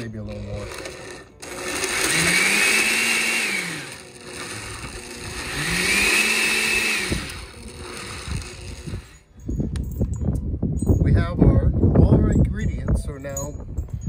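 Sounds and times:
electric blender motor: 0.0s - 9.2s.

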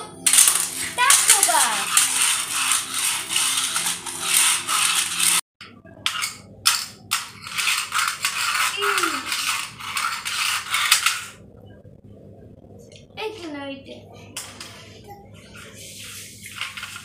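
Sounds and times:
toy car wheels whirring on tile: 0.0s - 5.4s, 6.0s - 11.4s, 15.5s - 17.0s.

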